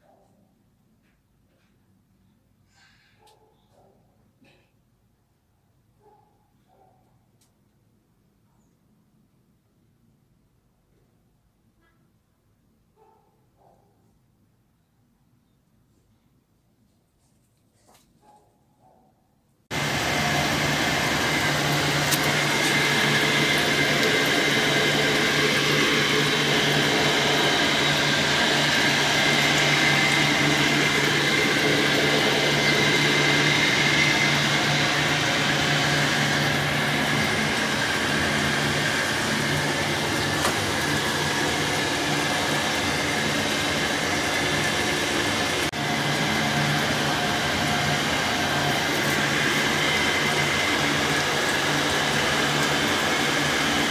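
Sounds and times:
motor-driven machine whirring: 0:19.7 - 0:53.9.

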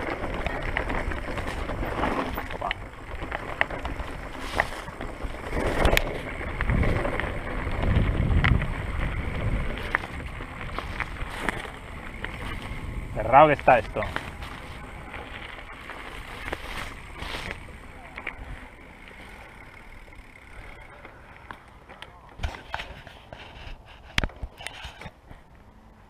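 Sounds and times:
wind rumbling on microphone: 0:00.0 - 0:20.8
bike rolling over loose stones: 0:00.0 - 0:25.6
clicks and knocks from bike: 0:00.0 - 0:25.6.

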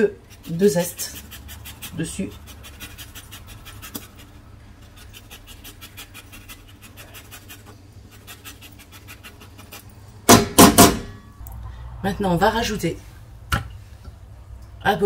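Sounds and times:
grater scraping: 0:00.3 - 0:09.9.

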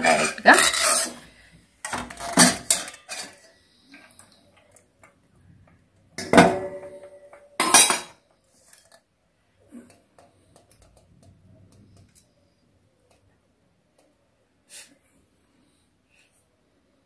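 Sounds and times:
metal kitchenware knocks: 0:06.2 - 0:08.2.

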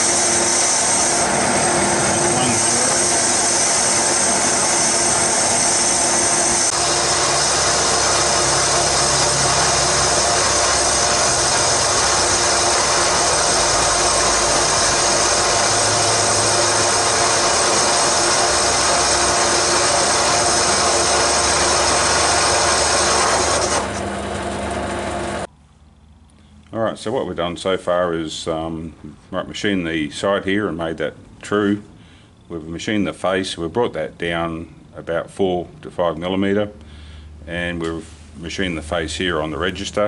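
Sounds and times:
hiss of metal cutting: 0:00.0 - 0:23.8
metal lathe whine: 0:00.0 - 0:25.5.

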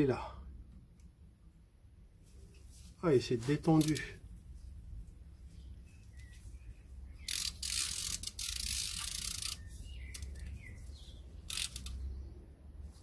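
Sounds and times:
socket ratchet clicking: 0:07.3 - 0:10.6, 0:11.4 - 0:12.0.

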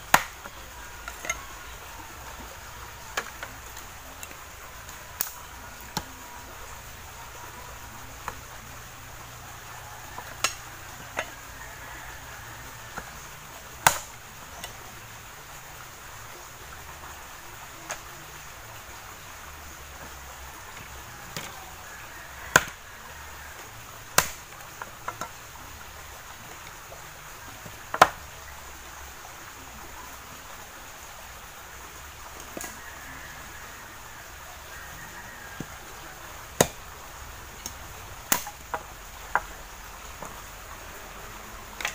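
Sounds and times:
machete chopping branches: 0:00.0 - 0:01.4, 0:10.2 - 0:11.4, 0:13.8 - 0:14.8, 0:22.5 - 0:22.8, 0:23.5 - 0:25.4, 0:27.8 - 0:28.2, 0:36.5 - 0:36.9, 0:37.6 - 0:39.5.

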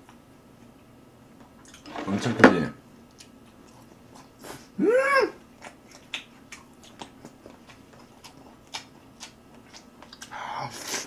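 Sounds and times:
man vocalising ooh: 0:04.8 - 0:05.4
chewing and lip smacks: 0:05.6 - 0:10.4.

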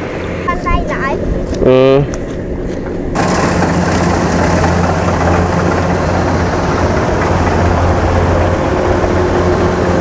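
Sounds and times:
combine harvester engine hum: 0:02.8 - 0:10.0
threshing machinery clatter: 0:03.2 - 0:10.0.

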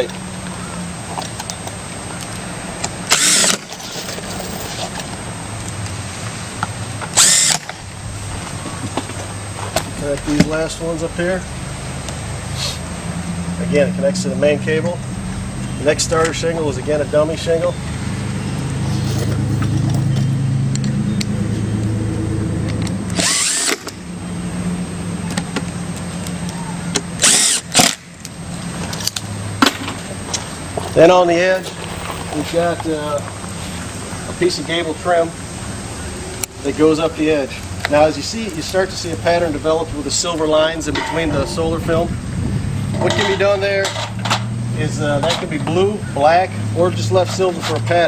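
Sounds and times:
cordless drill running: 0:03.1 - 0:03.7, 0:07.2 - 0:07.7, 0:23.1 - 0:24.0, 0:27.2 - 0:28.0.

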